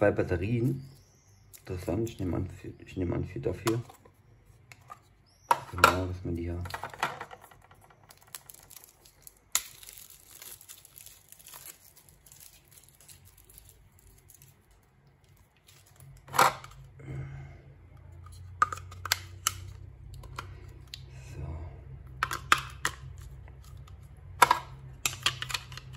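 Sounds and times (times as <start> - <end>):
plastic bags crinkling and tearing: 8.0 - 16.2.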